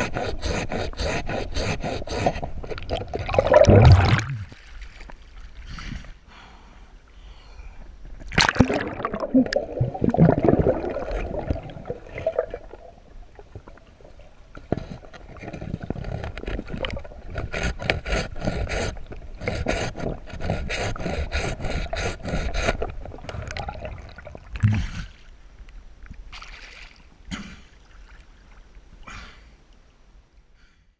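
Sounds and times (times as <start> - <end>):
saw scraping through log: 0.0 - 2.5, 17.3 - 22.8
river water churning and gurgling: 0.0 - 5.6, 8.3 - 25.5.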